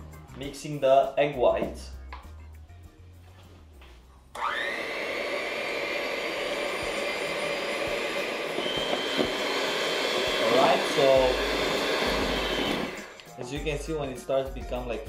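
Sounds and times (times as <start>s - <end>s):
electric mixer motor whining: 4.4s - 13.3s.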